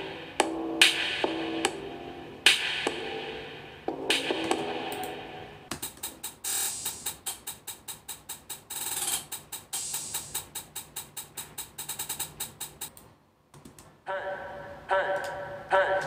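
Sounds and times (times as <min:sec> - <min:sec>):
synth chord: 0:00.0 - 0:05.7
hi-hat pattern: 0:00.0 - 0:13.0.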